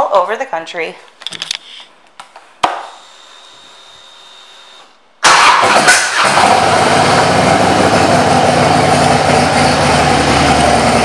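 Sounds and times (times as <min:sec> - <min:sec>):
motorcycle engine starting and idling: 0:05.2 - 0:11.0.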